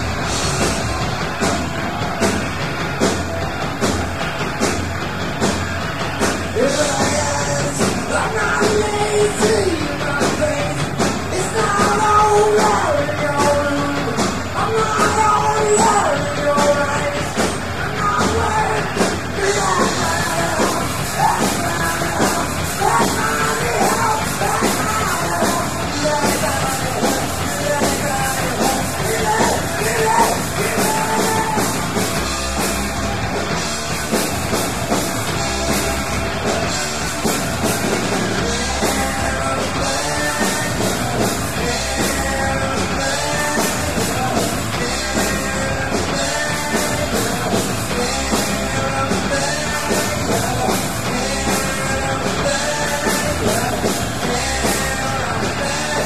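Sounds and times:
bass guitar: 0.0s - 56.0s
distorted electric guitar: 0.0s - 56.0s
drums: 0.0s - 56.0s
person shouting singing: 6.6s - 32.0s, 38.4s - 56.0s.

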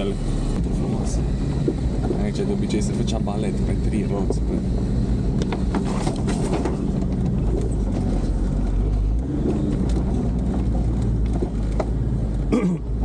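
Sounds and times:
low engine drone: 0.0s - 13.0s
cab rattles and knocks: 5.4s - 13.0s.

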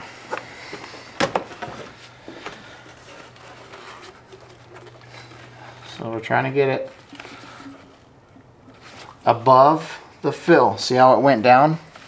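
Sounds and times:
electric pump humming: 0.0s - 10.2s
handling noise: 0.2s - 9.2s.

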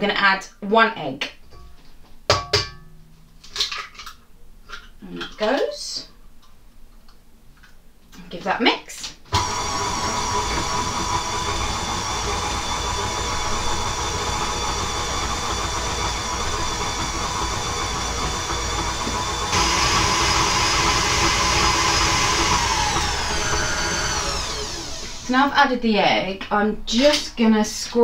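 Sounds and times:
stand mixer motor whine: 9.4s - 25.4s.

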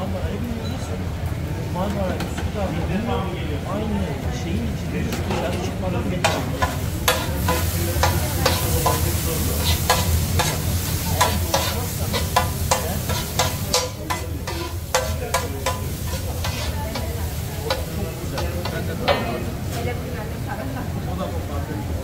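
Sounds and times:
food sizzling: 6.0s - 20.7s
metal spatulas clacking on griddle: 6.2s - 19.5s.

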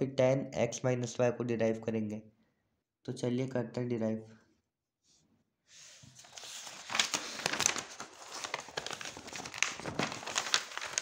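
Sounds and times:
paper rustling and crinkling: 5.8s - 11.0s.

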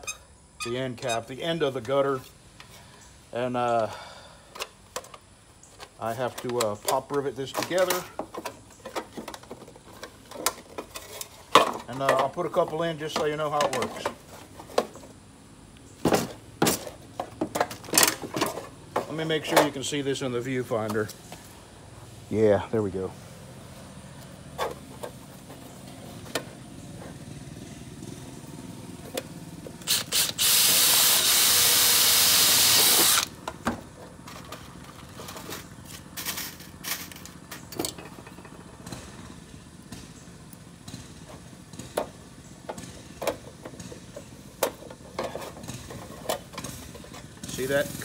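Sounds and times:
tools clicking and knocking: 4.5s - 15.1s, 40.8s - 47.6s
cordless drill drilling: 29.8s - 33.3s.

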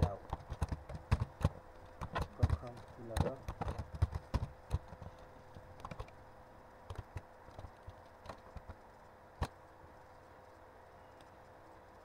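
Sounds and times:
computer keyboard keystrokes: 0.0s - 5.1s, 5.8s - 6.2s
faint steady hum: 0.0s - 12.0s.

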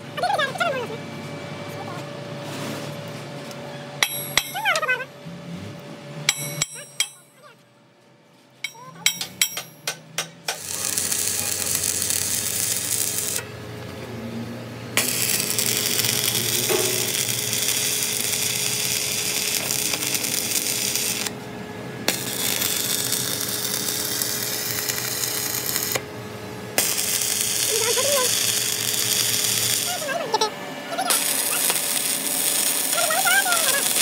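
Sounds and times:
metal clinks and knocks: 8.6s - 10.4s
power tool running with hiss: 10.5s - 13.5s, 15.0s - 34.0s.

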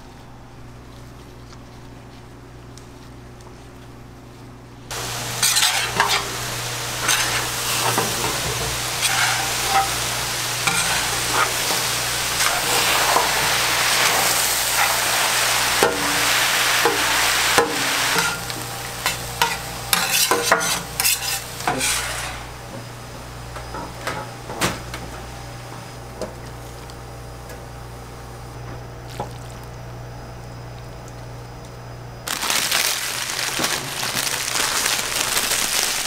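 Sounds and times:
steady low hum: 0.0s - 33.5s
onions sizzling on a griddle: 4.9s - 24.5s, 32.3s - 36.0s
metal spatulas scraping and clacking: 5.4s - 6.3s, 7.0s - 10.0s, 10.6s - 11.8s, 18.1s - 22.5s.

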